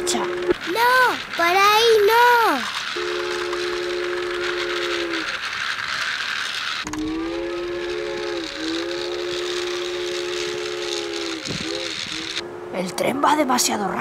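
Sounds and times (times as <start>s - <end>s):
steady mechanical whir: 0.0s - 14.0s
chime train whistle: 2.9s - 5.4s, 6.8s - 12.9s.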